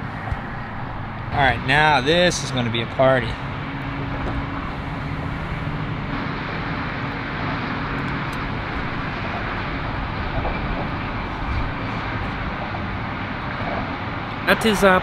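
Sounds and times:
road traffic drone: 0.0 - 15.0.

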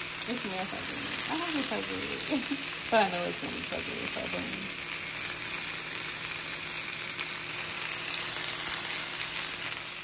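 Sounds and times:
chicken sizzling in a frying pan: 0.0 - 10.0.

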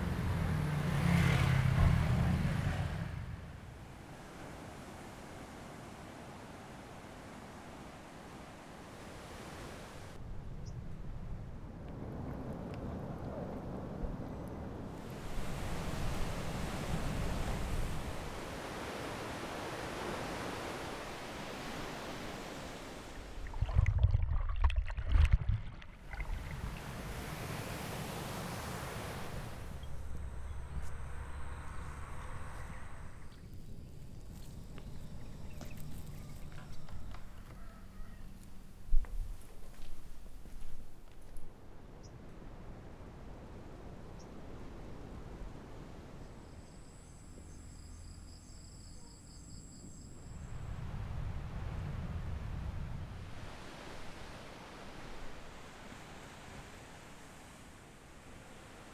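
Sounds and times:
ocean surf washing on beach: 3.8 - 10.2, 11.9 - 23.9, 25.6 - 30.3, 50.7 - 58.9
insects chirping trill: 46.2 - 51.1.

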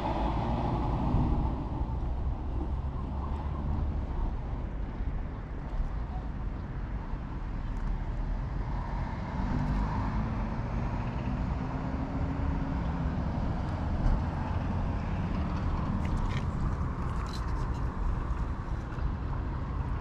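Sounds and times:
passing vehicle engine hum: 0.0 - 5.2
road traffic rumble: 0.0 - 20.0.

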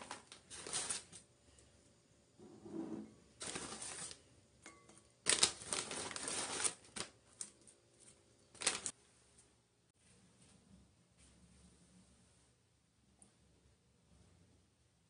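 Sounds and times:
plastic bag crinkling: 0.0 - 1.2, 3.4 - 4.2, 5.2 - 9.0
dried root slices rustling: 5.3 - 9.0.

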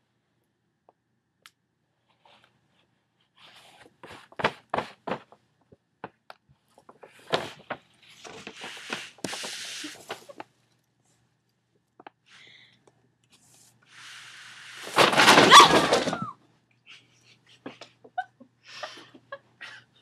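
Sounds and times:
shopping bag rustling: 14.8 - 16.3.

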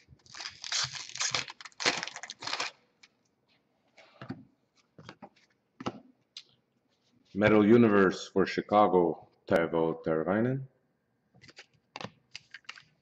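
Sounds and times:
foil wrapper crinkling and tearing: 0.0 - 2.8
cards clicking and rustling: 11.4 - 13.0.

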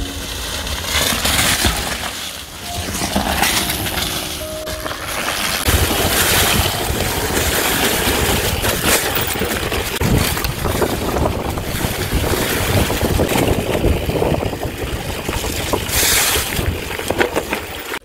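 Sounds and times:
bike rattling: 0.0 - 18.0
tyres crackling over dry leaves: 0.0 - 18.0
wind rushing over microphone: 5.6 - 17.3.

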